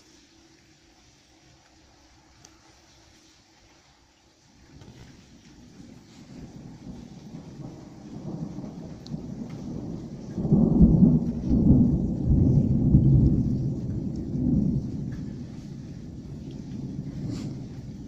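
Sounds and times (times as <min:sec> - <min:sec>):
thunder rolling: 0:04.7 - 0:18.0.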